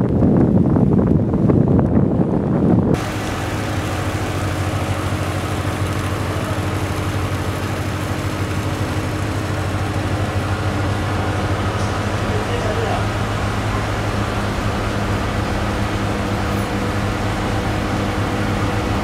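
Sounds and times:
wind buffeting microphone: 0.0s - 19.0s
diesel engine droning: 0.7s - 19.0s.

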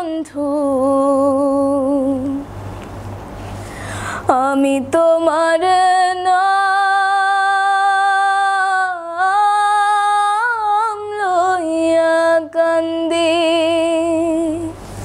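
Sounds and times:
woman singing unaccompanied: 0.0s - 2.5s, 4.3s - 14.8s.

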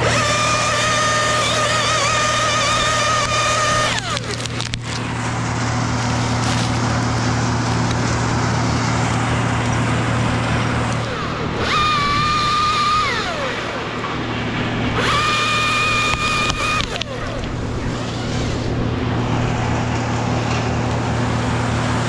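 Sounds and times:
chainsaw revving and winding down: 0.0s - 22.0s
low engine hum: 0.0s - 22.0s
rough noise: 0.0s - 22.0s.

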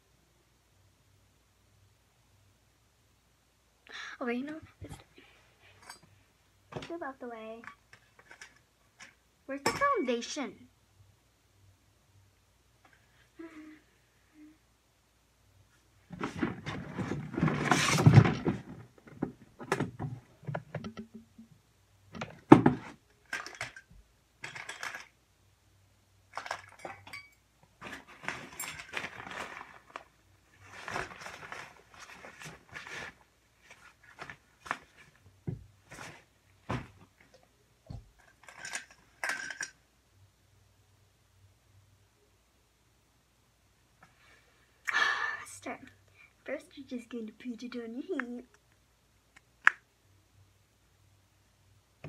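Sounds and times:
small containers clinking and clattering: 7.6s - 10.0s, 23.2s - 25.2s, 26.3s - 35.1s, 38.2s - 39.8s.

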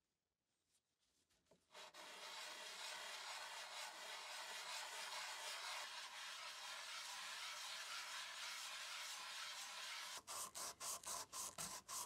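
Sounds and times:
wood rubbing on sandpaper: 1.7s - 12.0s.

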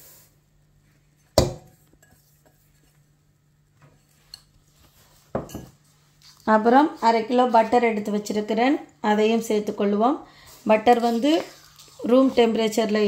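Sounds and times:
glass bowl knocking metal pot: 1.4s - 1.7s
kitchenware clattering: 5.3s - 5.8s.

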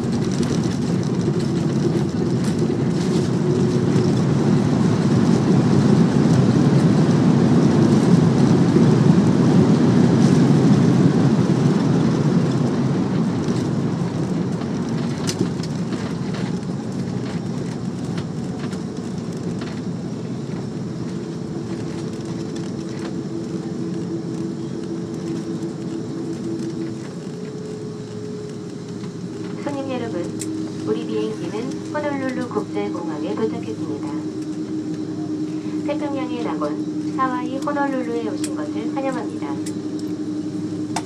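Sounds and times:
engines and wheels rumbling: 0.0s - 41.0s
cabin hum with faint whine: 18.5s - 41.0s.

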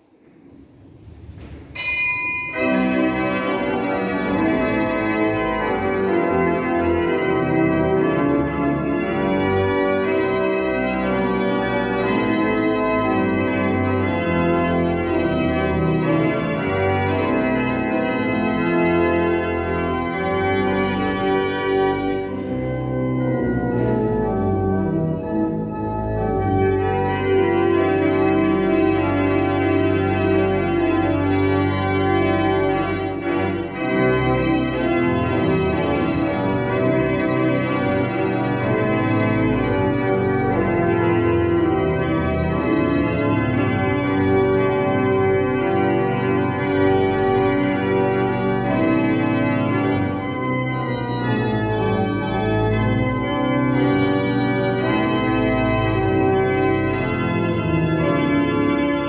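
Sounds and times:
pipe organ playing a hymn: 0.0s - 59.0s.

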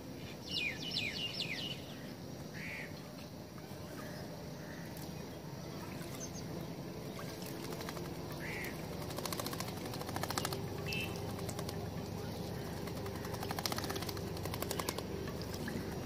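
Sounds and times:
low background rumble: 0.1s - 16.0s
bird chirps: 0.2s - 3.0s, 3.9s - 16.0s
bird splashing in water: 7.0s - 16.0s.

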